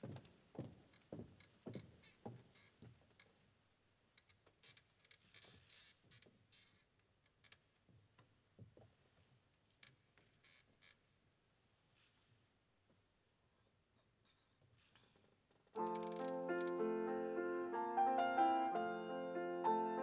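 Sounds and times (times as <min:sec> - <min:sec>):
faint footsteps on stage floor: 0:00.0 - 0:03.4, 0:07.8 - 0:09.4
soft rustle: 0:00.1 - 0:16.4.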